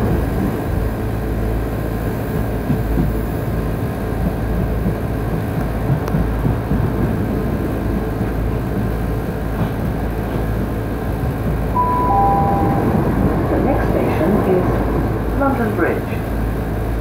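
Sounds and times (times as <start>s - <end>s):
train rumbling inside carriage: 0.0s - 17.0s
wheels running on rails: 0.0s - 17.0s
chime tone: 11.8s - 13.2s.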